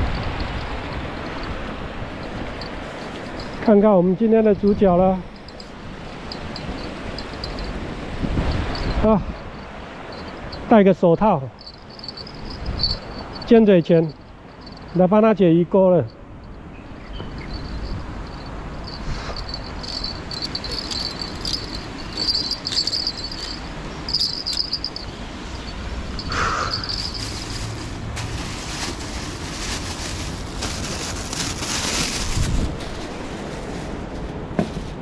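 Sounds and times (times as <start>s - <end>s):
insects chirping: 0.0s - 15.4s, 16.0s - 28.1s
crackling and rustling: 0.5s - 3.8s, 5.2s - 9.0s, 10.1s - 10.5s, 11.6s - 13.5s, 17.2s - 35.0s
steady low rumble: 11.5s - 15.2s, 17.3s - 31.7s.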